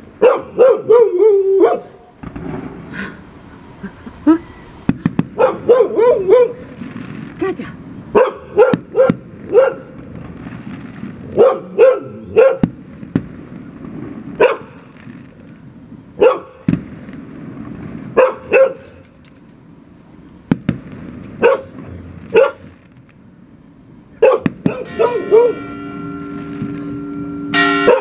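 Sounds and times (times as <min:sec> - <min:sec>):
dog barking: 0:00.2 - 0:02.1, 0:05.4 - 0:06.6, 0:08.2 - 0:09.9, 0:11.4 - 0:12.7, 0:14.4 - 0:14.8, 0:16.2 - 0:16.6, 0:18.2 - 0:19.0, 0:21.4 - 0:22.7, 0:24.2 - 0:25.6, 0:27.8 - 0:28.0
fireworks cracking: 0:02.1 - 0:28.0.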